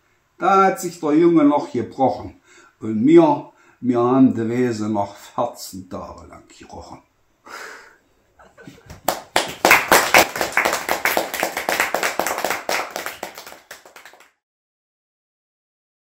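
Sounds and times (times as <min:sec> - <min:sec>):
people clapping: 0:08.8 - 0:14.4.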